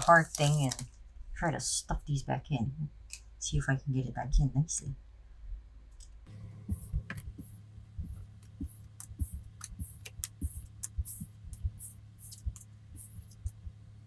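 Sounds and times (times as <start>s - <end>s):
low hum: 5.0s - 14.0s
cards tapping and sliding: 6.8s - 13.7s.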